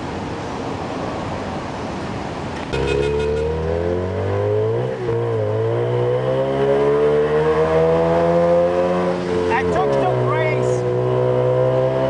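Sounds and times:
engine revving: 0:02.8 - 0:12.0.

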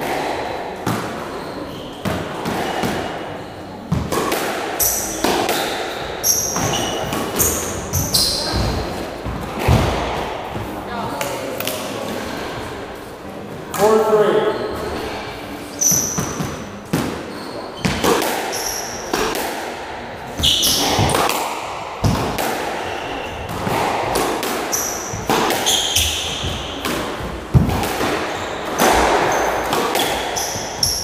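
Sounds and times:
squash ball hit by rackets: 0:00.0 - 0:03.3, 0:03.9 - 0:11.9, 0:15.8 - 0:31.0
ball striking walls and floor: 0:00.0 - 0:12.8, 0:13.6 - 0:31.0
shoes squeaking on floor: 0:00.9 - 0:04.2, 0:04.8 - 0:11.2, 0:13.8 - 0:19.3, 0:20.3 - 0:21.3, 0:22.8 - 0:23.9, 0:24.5 - 0:31.0.

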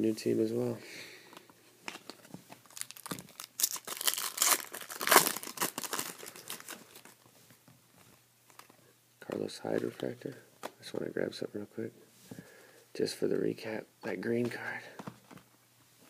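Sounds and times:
foil wrapper crinkling and tearing: 0:01.9 - 0:07.2.

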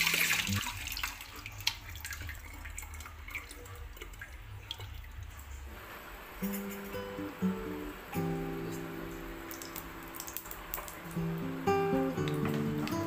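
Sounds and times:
water dripping: 0:00.0 - 0:05.8, 0:06.4 - 0:13.0
running water splashing: 0:00.0 - 0:13.0
small wet clicks: 0:09.4 - 0:11.2.

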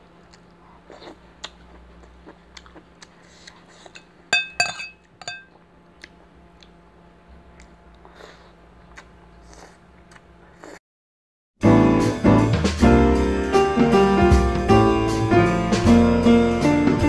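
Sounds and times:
cutlery clinking on dishes: 0:03.9 - 0:05.5.

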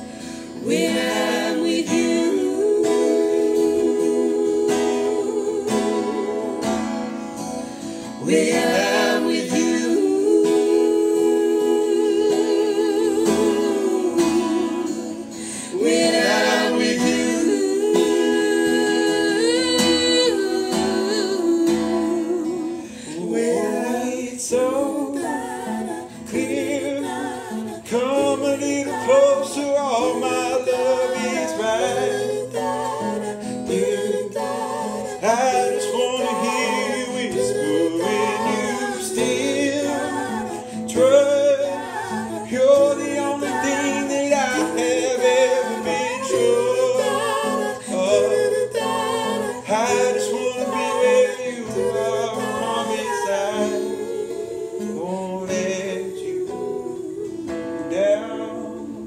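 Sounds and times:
acoustic guitar strumming: 0:00.0 - 0:59.0
man singing: 0:08.2 - 0:15.0, 0:15.7 - 0:25.1, 0:27.8 - 0:32.1, 0:35.1 - 0:48.5, 0:49.6 - 0:54.2, 0:54.8 - 0:56.8, 0:57.8 - 0:59.0.

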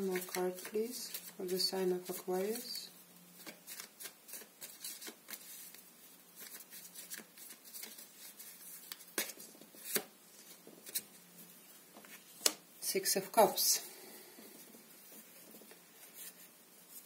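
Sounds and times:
cards shuffling: 0:00.0 - 0:02.6, 0:03.4 - 0:05.8, 0:06.4 - 0:11.2.

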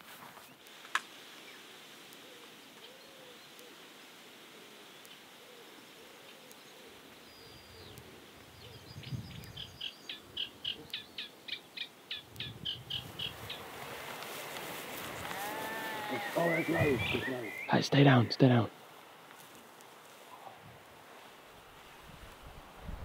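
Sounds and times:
faint low bird calls: 0:01.4 - 0:14.1, 0:14.9 - 0:18.8.

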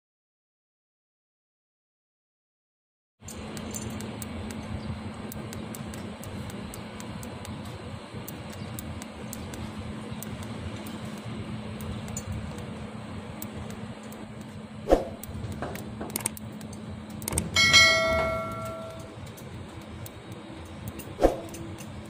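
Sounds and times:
low steady hum: 0:03.2 - 0:22.0
welding arc crackling: 0:03.2 - 0:22.0
sharp pops: 0:14.4 - 0:17.6, 0:21.2 - 0:21.6.

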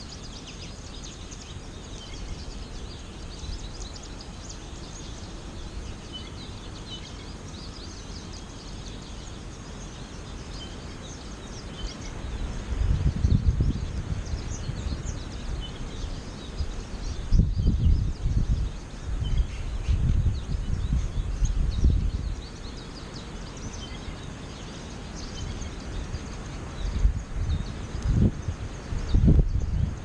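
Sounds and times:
birds chirping and twittering: 0:00.0 - 0:30.0
wind buffeting microphone: 0:11.5 - 0:22.8, 0:25.2 - 0:30.0.

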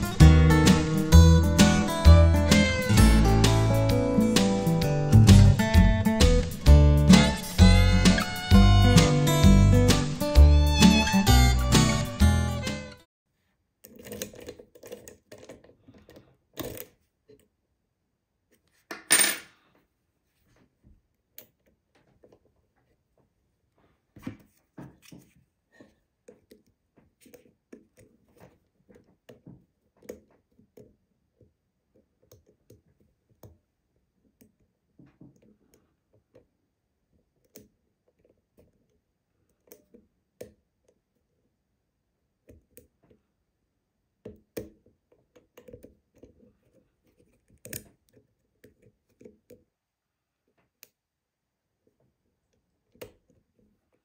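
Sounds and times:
lock pick clicking and scraping: 0:13.8 - 0:17.0, 0:45.4 - 0:49.6.

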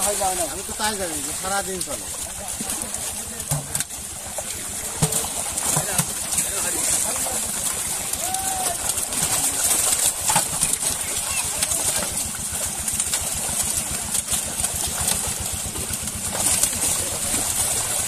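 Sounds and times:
fish thrashing and splashing: 0:00.0 - 0:18.0
rapid low throb: 0:09.0 - 0:18.0.

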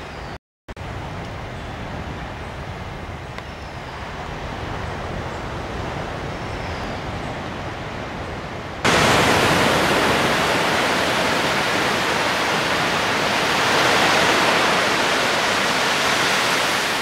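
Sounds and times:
waves breaking on a beach: 0:03.9 - 0:17.0.

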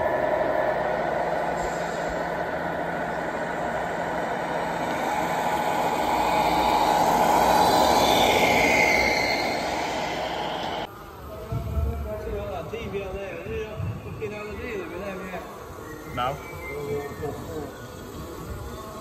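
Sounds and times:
toy truck motors whining: 0:14.3 - 0:19.0.

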